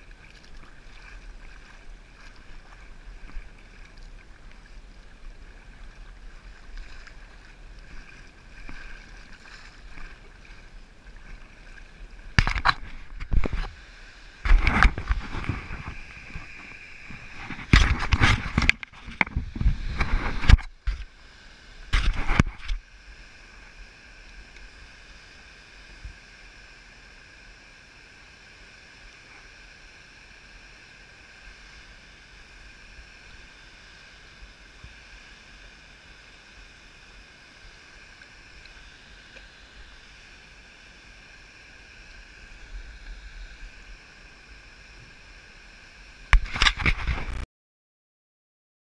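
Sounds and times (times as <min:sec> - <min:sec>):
water rushing: 0:00.0 - 0:47.4.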